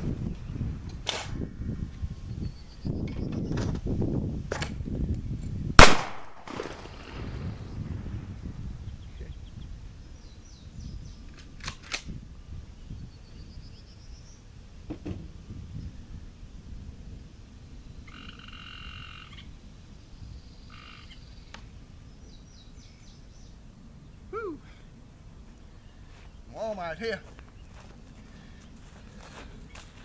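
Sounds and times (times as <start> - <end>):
low rumble: 6.5 - 10.0
sharp clicks: 11.3 - 12.1
animal calls and chirps: 18.0 - 19.6, 20.2 - 21.6.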